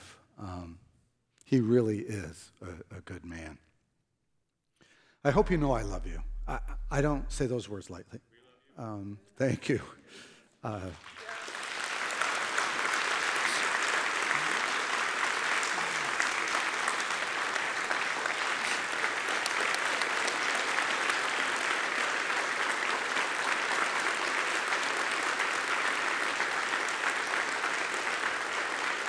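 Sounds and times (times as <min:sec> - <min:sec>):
crowd applauding: 0:10.7 - 0:29.0.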